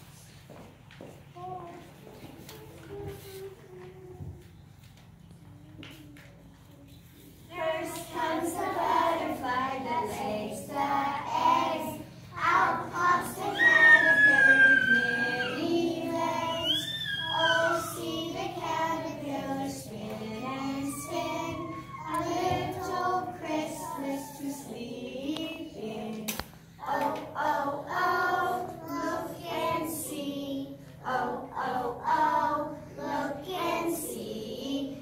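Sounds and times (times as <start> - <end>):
young children singing: 7.5 - 35.0.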